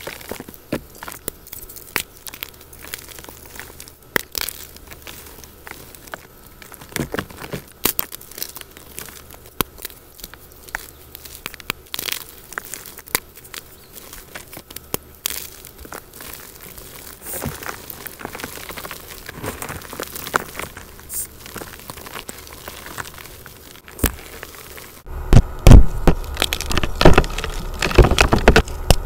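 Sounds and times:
chalk crushed by hand: 0.0s - 29.0s
gritty powder rustling: 0.0s - 29.0s.

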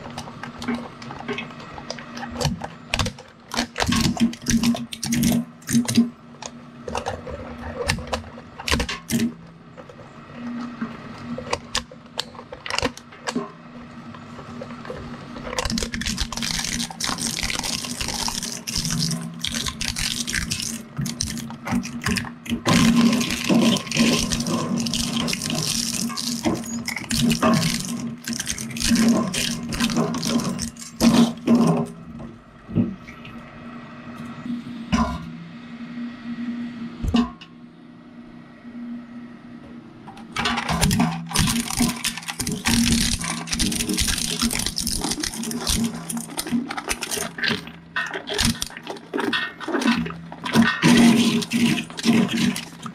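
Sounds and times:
shredder cracking and crunching: 0.0s - 7.2s, 7.8s - 9.4s, 11.5s - 13.5s, 15.4s - 32.0s, 40.4s - 52.9s
shredder motor hum: 15.6s - 32.0s, 40.7s - 52.9s.

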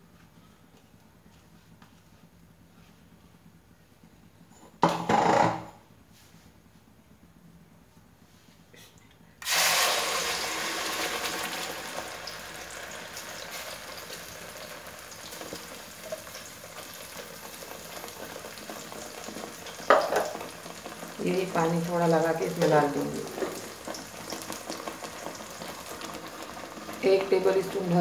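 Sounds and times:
paste sizzling in hot oil: 9.4s - 28.0s.

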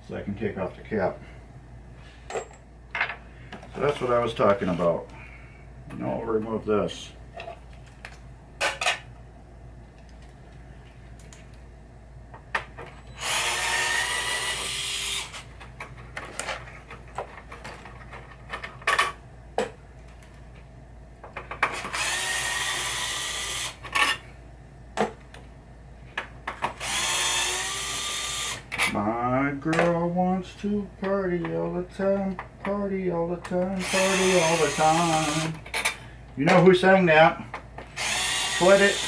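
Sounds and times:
electric screwdriver running: 13.2s - 15.5s, 21.9s - 23.8s, 26.8s - 28.6s, 33.8s - 35.6s, 38.0s - 39.0s
parts clicking and knocking: 21.2s - 22.1s, 26.1s - 27.0s.

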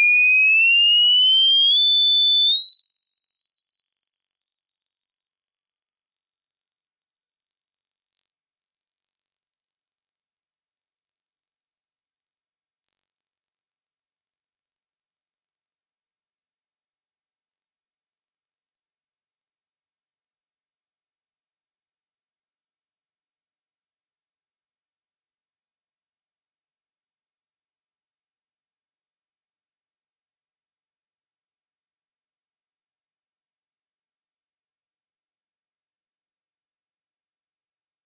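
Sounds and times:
high whistle tone rising in pitch: 5.8s - 20.2s.

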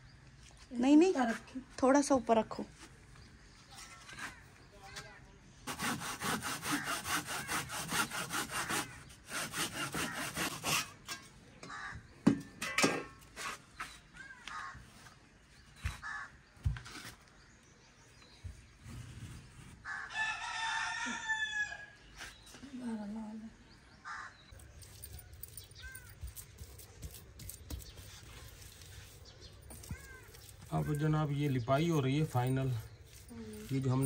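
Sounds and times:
hand saw cutting wood: 5.6s - 11.2s, 26.6s - 34.0s
rooster crowing: 19.9s - 22.0s.

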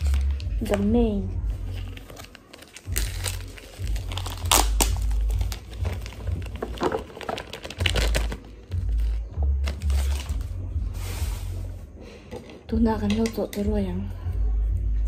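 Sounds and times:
plastic bag crinkling: 1.8s - 8.5s.

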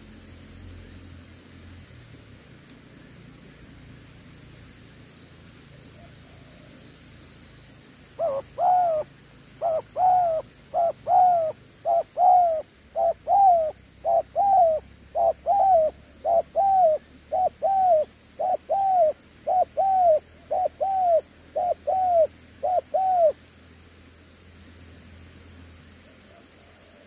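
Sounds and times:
dove cooing: 8.2s - 23.4s.

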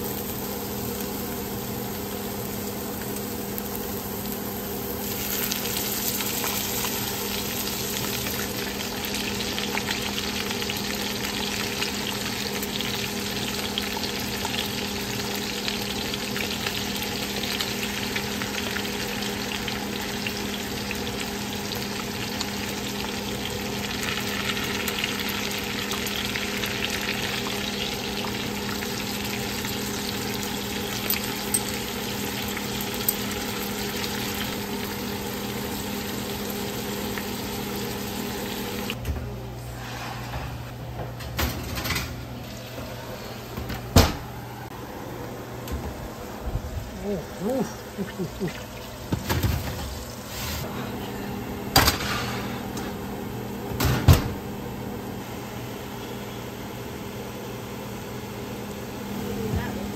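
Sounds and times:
fish sizzling in butter: 0.0s - 38.9s.

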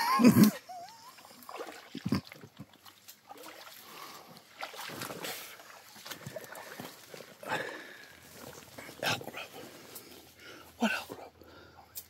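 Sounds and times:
boots splashing through water: 1.4s - 10.4s.

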